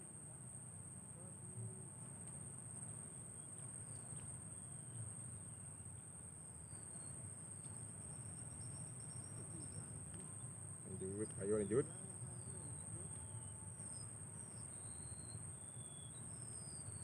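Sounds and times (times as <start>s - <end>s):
high-pitched insect drone: 10.9s - 17.0s.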